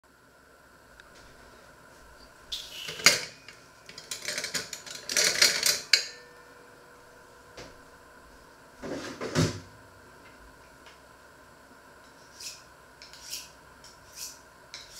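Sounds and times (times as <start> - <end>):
metal utensils clattering: 2.9 - 6.3.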